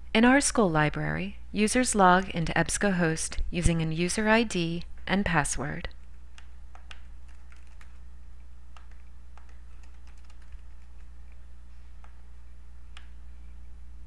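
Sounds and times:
low electrical hum: 0:00.0 - 0:14.0
keyboard typing: 0:06.3 - 0:08.1, 0:08.7 - 0:11.4.

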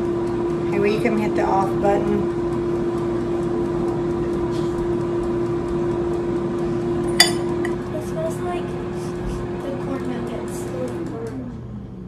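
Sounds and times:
air fryer fan humming: 0:00.0 - 0:12.0
sharp clink: 0:07.2 - 0:07.5.

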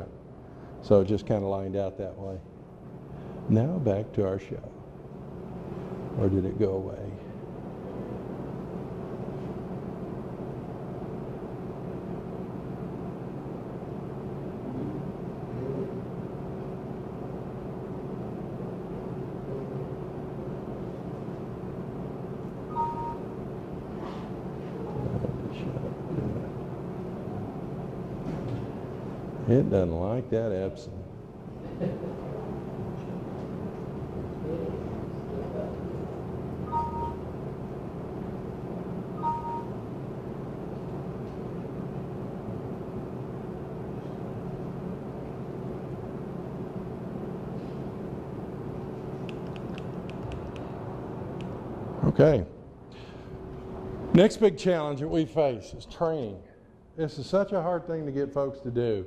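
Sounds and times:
low room hum: 0:00.0 - 0:59.0
faint held tones: 0:22.7 - 0:23.4, 0:36.6 - 0:37.3, 0:39.2 - 0:39.8.

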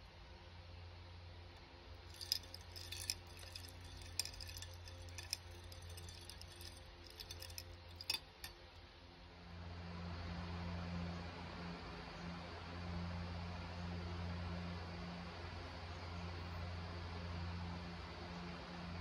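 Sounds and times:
ice cubes clinking in glass: 0:02.0 - 0:08.2.

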